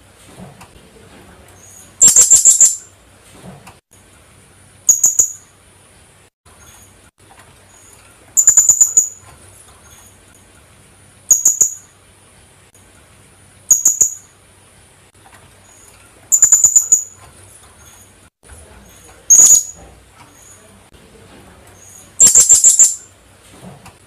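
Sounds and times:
parrot calling high sharp notes: 2.0 - 2.8, 4.9 - 5.4, 8.4 - 9.2, 11.3 - 11.8, 13.7 - 14.2, 16.3 - 17.2, 19.3 - 19.8, 22.2 - 23.0.

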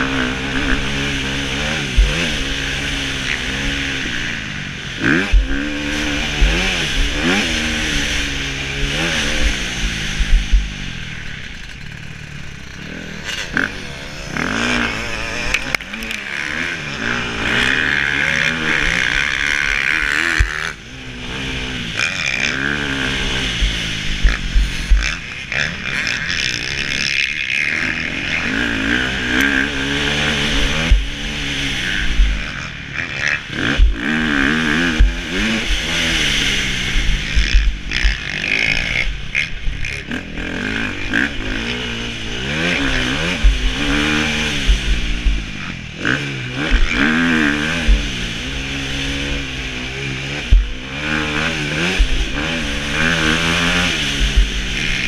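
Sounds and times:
motocross bike engine revving: 0.0 - 55.0
wind thumps on microphone: 9.4 - 10.8, 30.8 - 31.4, 43.0 - 45.6, 46.6 - 48.6, 50.4 - 55.0.

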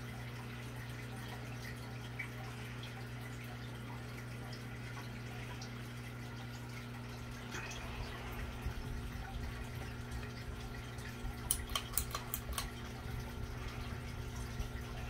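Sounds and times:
ceiling fan hum: 0.0 - 15.0
fish-tank fountains trickling: 0.0 - 15.0.

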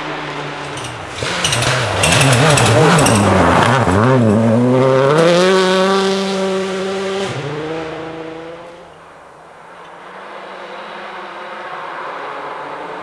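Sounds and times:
rally car engine at high revs: 0.0 - 8.9.

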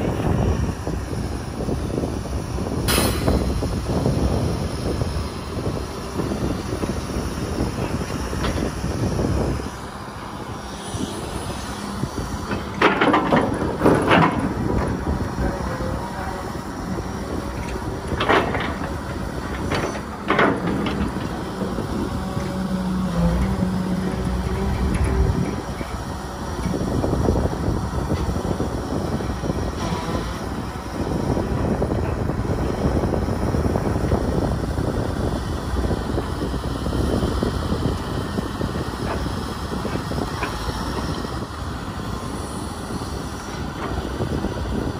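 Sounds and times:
excavator diesel engine hum: 0.0 - 44.9.

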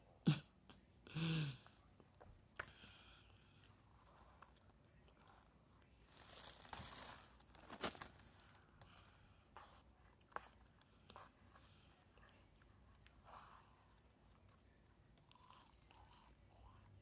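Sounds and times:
cardboard box crinkling: 6.1 - 8.6.

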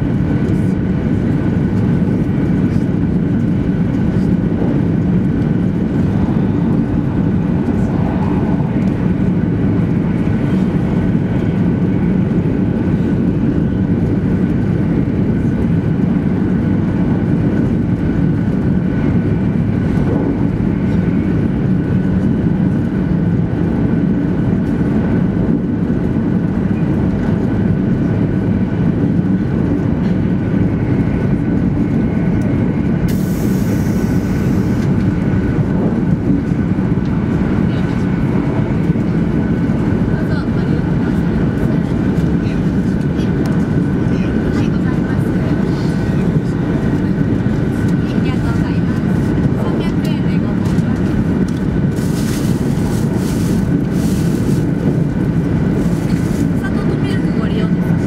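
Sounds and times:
train cabin rumble: 0.0 - 58.0.

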